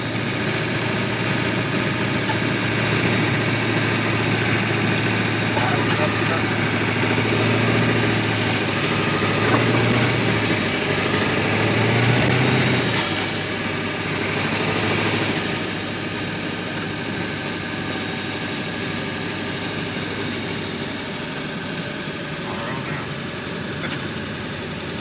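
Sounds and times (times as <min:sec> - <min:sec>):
truck engine running: 0:00.0 - 0:25.0.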